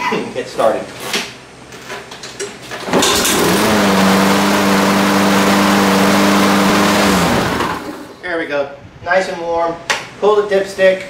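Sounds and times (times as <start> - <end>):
lawn mower engine running: 2.8 - 8.2.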